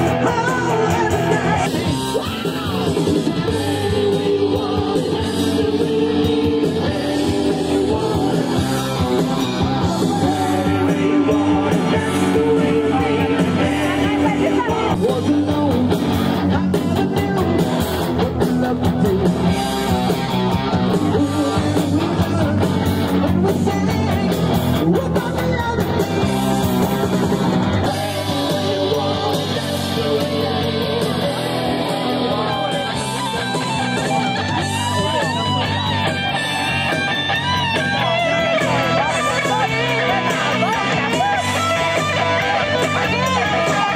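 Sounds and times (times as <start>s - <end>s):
person singing: 0.0s - 20.0s, 20.8s - 26.3s, 27.0s - 35.9s
bending guitar notes: 0.0s - 43.9s
rock band playing: 0.0s - 43.9s.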